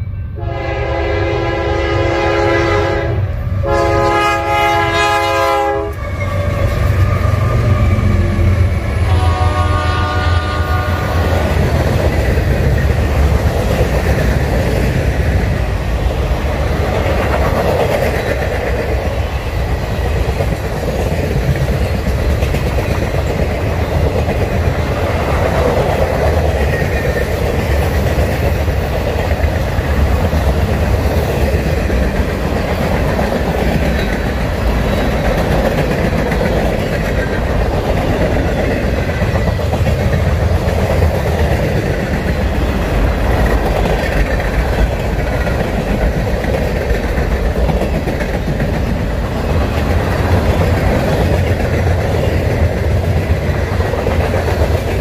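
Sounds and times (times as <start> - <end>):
freight train rumbling past: 0.0 - 55.0
train horn chord: 0.3 - 11.3.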